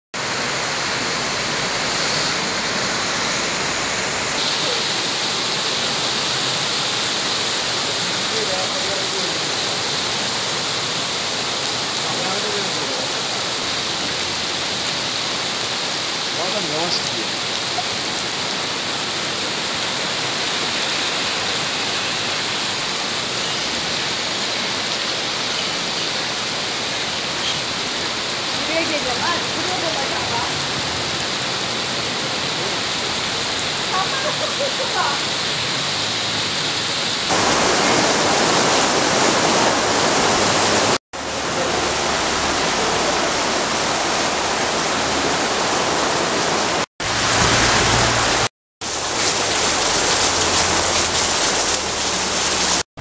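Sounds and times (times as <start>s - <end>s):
heavy rain pouring: 0.2s - 52.9s.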